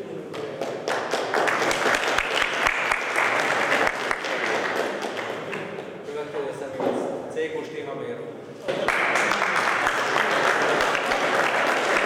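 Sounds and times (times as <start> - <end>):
audience applauding: 0.4 - 5.8, 8.7 - 12.0.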